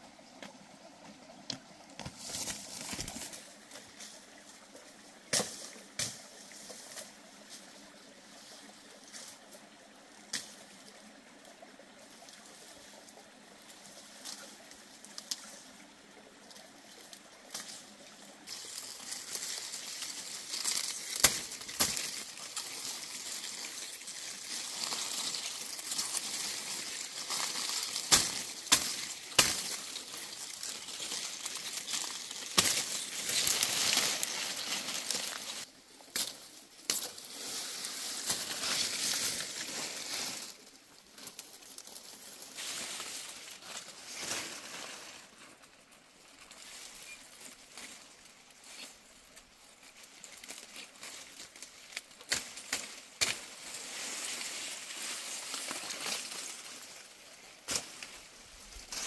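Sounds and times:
long grass rustling: 0.0s - 59.0s
footsteps through undergrowth: 0.4s - 9.7s, 16.5s - 59.0s
machete chopping grass: 28.0s - 29.8s.

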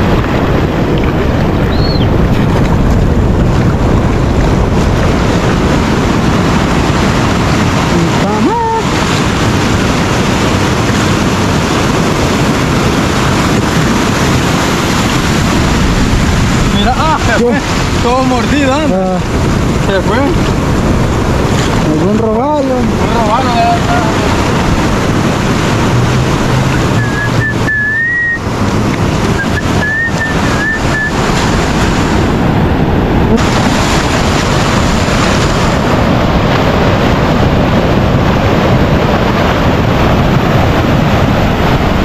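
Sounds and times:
ocean surf breaking: 0.0s - 42.0s
wind buffeting microphone: 0.0s - 42.0s
person whistling: 27.0s - 28.4s, 29.4s - 31.2s.

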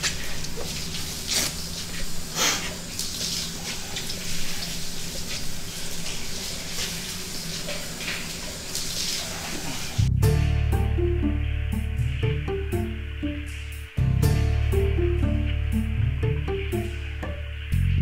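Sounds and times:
shower running: 0.0s - 18.0s.

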